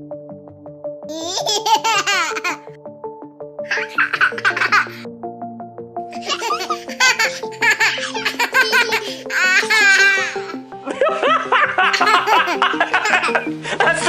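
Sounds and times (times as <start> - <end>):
light background music: 0.0 - 14.0
person laughing hard: 1.1 - 2.7, 3.7 - 5.0, 6.2 - 14.0.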